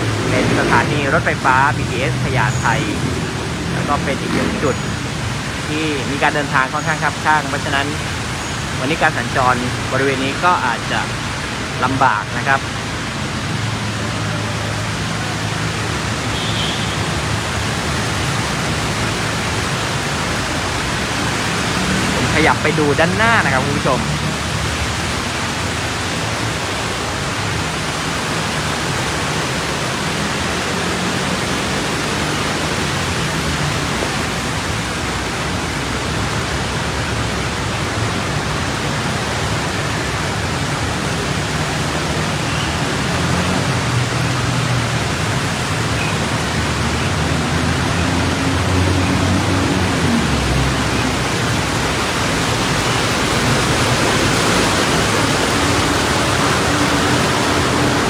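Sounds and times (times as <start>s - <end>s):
cars driving through floodwater: 0.0s - 58.0s
low hum of engines: 0.0s - 58.0s
rain: 0.0s - 58.0s
bus wheels pushing through water: 12.6s - 22.7s, 23.6s - 58.0s.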